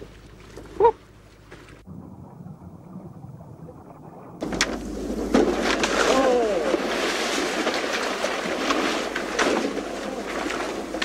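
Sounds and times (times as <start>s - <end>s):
sea noise: 0.0s - 11.0s
wind: 0.0s - 11.0s
person shouting: 6.0s - 6.7s.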